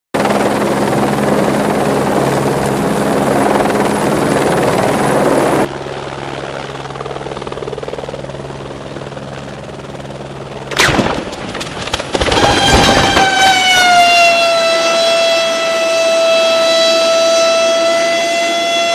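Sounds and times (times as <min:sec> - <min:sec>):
helicopter hovering: 0:00.2 - 0:18.9
loud tone falling in pitch: 0:12.2 - 0:18.9.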